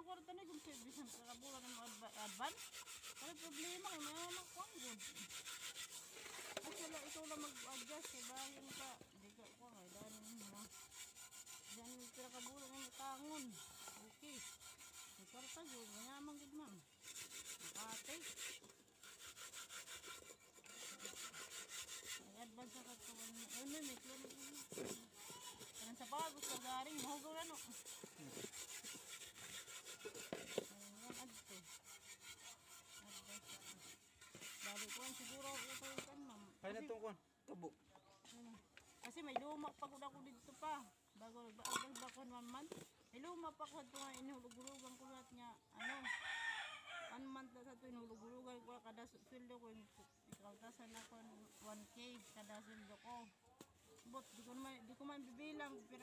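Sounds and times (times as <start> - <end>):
gritty scrubbing on metal pan: 0.1 - 36.3, 43.6 - 45.3
metal lid scraping on gritty sand: 0.4 - 9.0.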